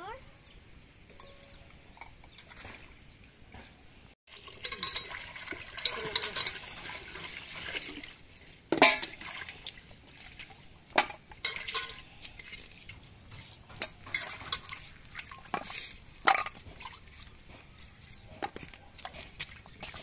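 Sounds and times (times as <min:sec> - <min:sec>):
bone and steel bowls clinking: 0:01.1 - 0:02.6, 0:04.4 - 0:07.3, 0:08.0 - 0:09.2, 0:10.5 - 0:12.5
water splashing and dripping: 0:04.3 - 0:20.0.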